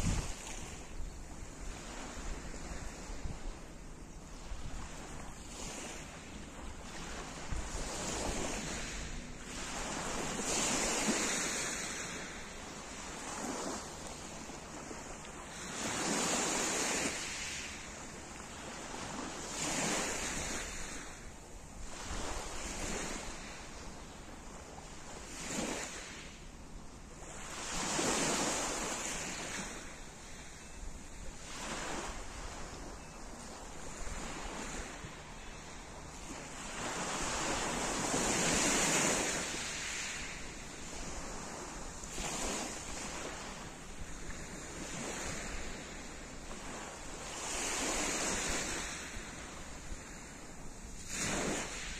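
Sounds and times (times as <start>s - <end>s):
waves washing on pebble beach: 7.6s - 12.4s.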